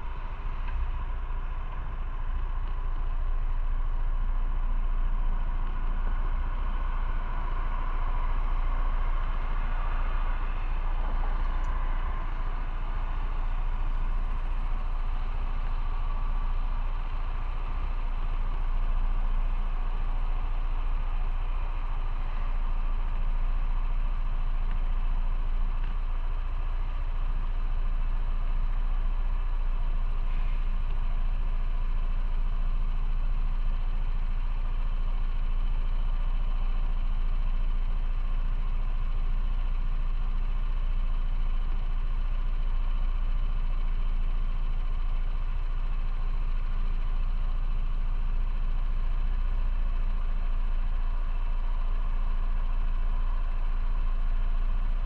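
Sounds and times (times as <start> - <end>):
motorcycle engine humming: 0.0 - 55.0
road or wind noise: 0.0 - 55.0.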